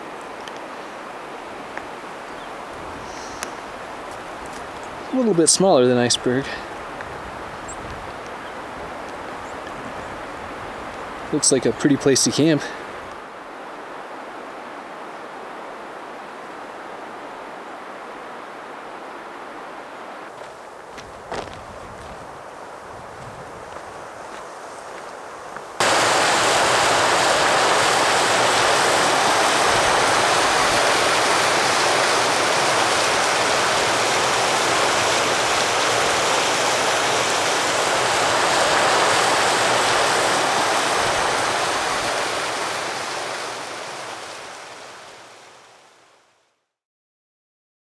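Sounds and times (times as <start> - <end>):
stream splashing over boulders: 20.3 - 45.9.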